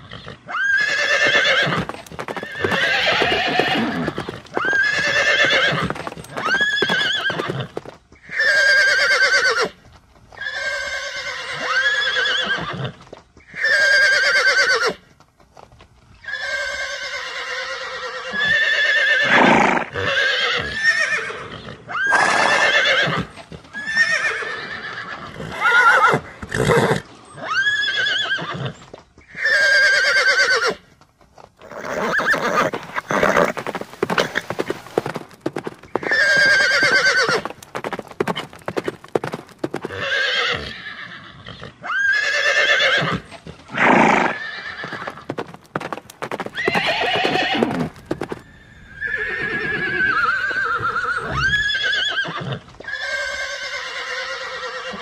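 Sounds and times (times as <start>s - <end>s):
horse whinnying: 0.0s - 9.8s, 10.4s - 15.0s, 16.2s - 30.9s, 31.6s - 55.0s.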